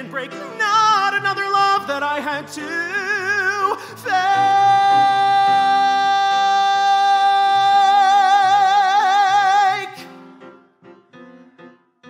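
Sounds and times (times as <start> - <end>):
man singing a high belted note: 0.0 - 10.0
piano chords: 0.0 - 12.0.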